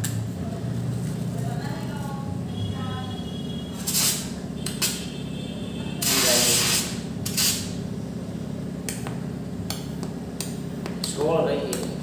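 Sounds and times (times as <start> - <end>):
gas hissing spurts from nozzle: 3.8 - 5.0, 6.0 - 7.8.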